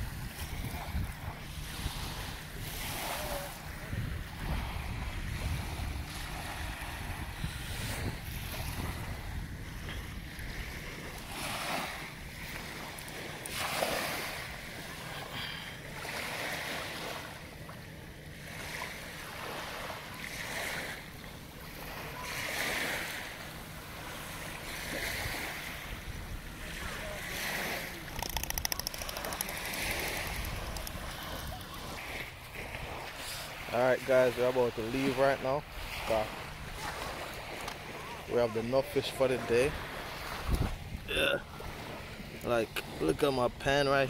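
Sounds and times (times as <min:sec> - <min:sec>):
low wind rumble on microphone: 0:00.0 - 0:11.4, 0:40.2 - 0:41.2
small waves lapping on shore: 0:00.0 - 0:44.0.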